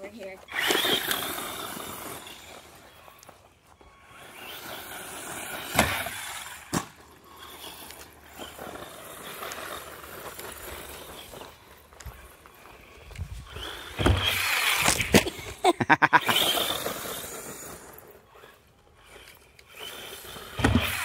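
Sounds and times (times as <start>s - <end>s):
rc truck motor and tyres hissing: 0.0s - 21.0s.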